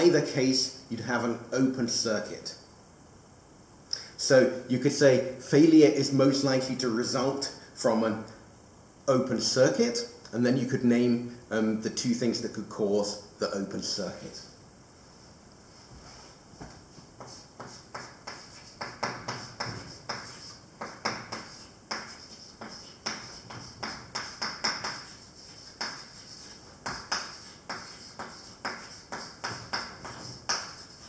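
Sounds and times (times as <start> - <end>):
chalk writing on a blackboard: 16.6 - 31.0.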